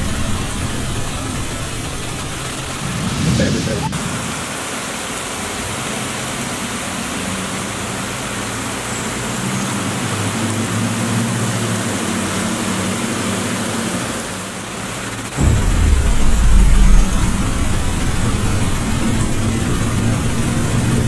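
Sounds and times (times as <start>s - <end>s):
heavy rain pouring: 0.0s - 21.0s
car engine hum: 15.4s - 21.0s.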